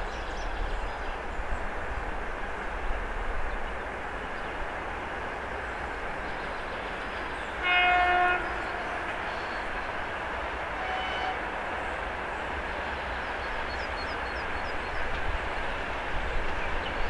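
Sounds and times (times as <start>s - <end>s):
diesel locomotive running: 0.4s - 17.0s
locomotive horn blasts: 7.6s - 9.3s, 10.7s - 11.5s.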